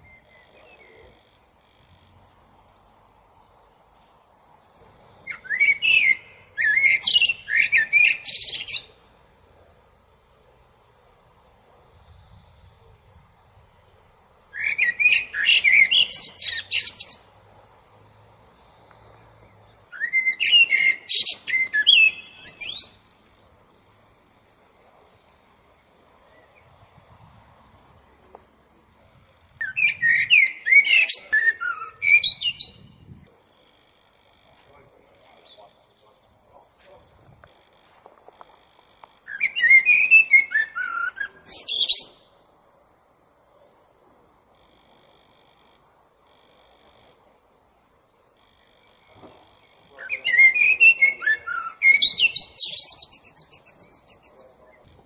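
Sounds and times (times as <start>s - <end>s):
blackbird singing: 0.0s - 2.9s, 4.6s - 9.8s, 14.5s - 17.5s, 18.4s - 26.9s, 27.9s - 37.3s, 38.3s - 42.4s, 47.8s - 55.0s.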